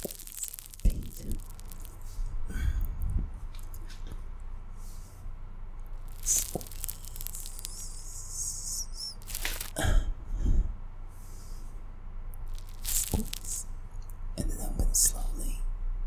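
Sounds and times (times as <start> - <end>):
fake nails rustling: 0.0 - 4.1, 6.0 - 9.8, 12.4 - 13.7
high wavering squeak: 6.4 - 9.7.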